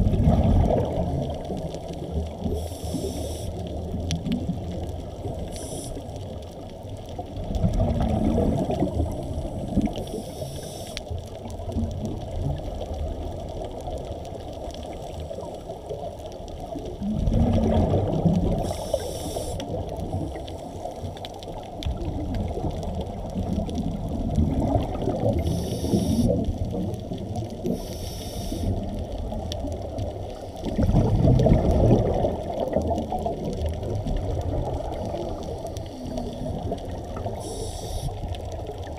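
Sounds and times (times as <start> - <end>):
underwater rushing and sloshing: 0.0 - 38.9
faint hisses: 2.4 - 3.9, 5.4 - 6.4, 8.9 - 11.2, 18.5 - 21.2, 25.3 - 26.4, 27.6 - 28.9, 35.4 - 38.3.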